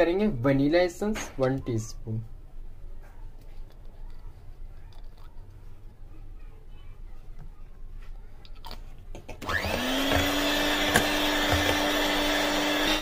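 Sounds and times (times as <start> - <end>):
electric hand mixer whine: 9.4 - 13.0.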